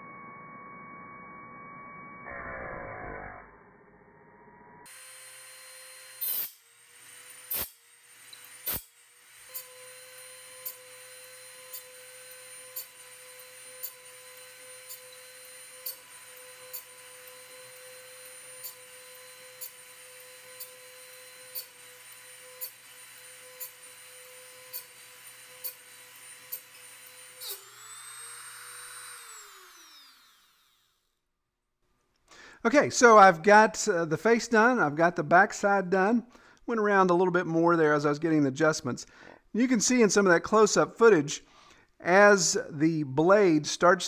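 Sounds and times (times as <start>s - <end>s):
rotary tool whining: 0.0s - 31.2s.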